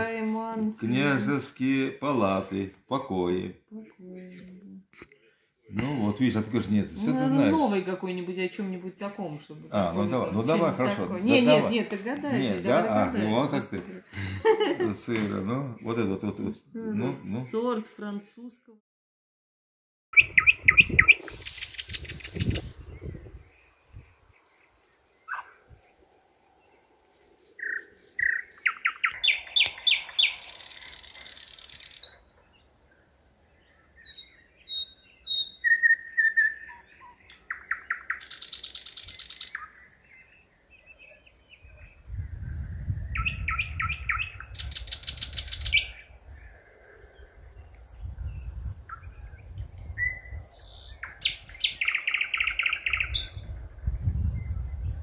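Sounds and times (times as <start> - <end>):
nightingale singing: 20.2 - 55.0.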